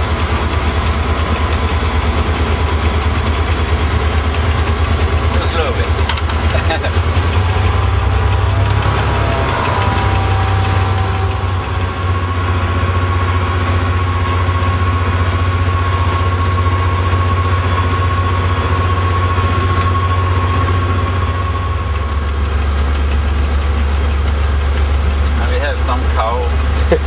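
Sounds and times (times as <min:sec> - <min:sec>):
diesel engine droning: 0:00.0 - 0:27.0
steady high tone: 0:02.2 - 0:23.5.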